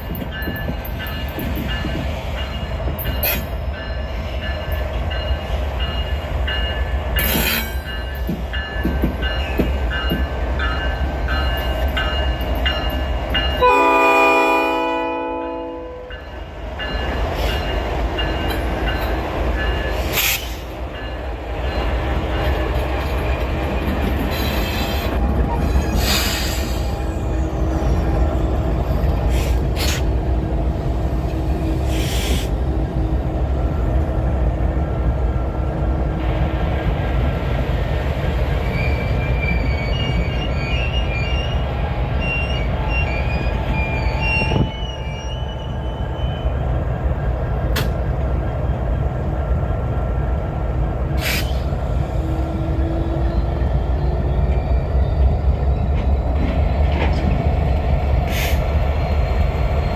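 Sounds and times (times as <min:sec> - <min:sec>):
wheel squeals: 0:38.6 - 0:46.6.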